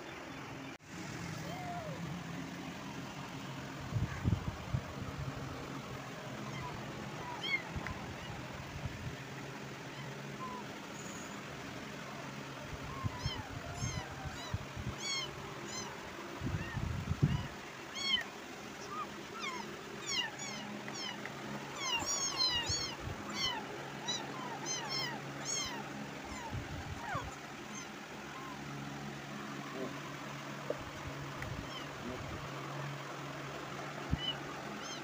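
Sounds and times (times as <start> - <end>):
kittens mewing: 6.0 - 33.3, 34.0 - 35.0.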